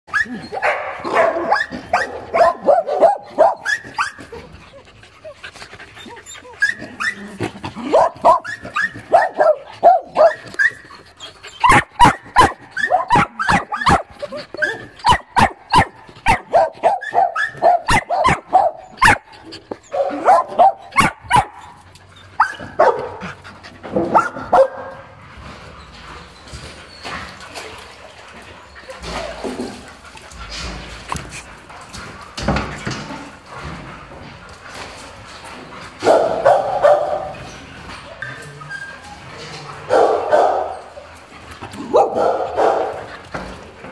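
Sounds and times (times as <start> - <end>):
dogs barking: 0.5 - 4.2, 7.8 - 10.8, 11.6 - 19.3, 19.9 - 21.8, 22.4 - 23.4, 24.0 - 25.2, 36.0 - 37.4, 39.8 - 41.1, 41.8 - 43.1.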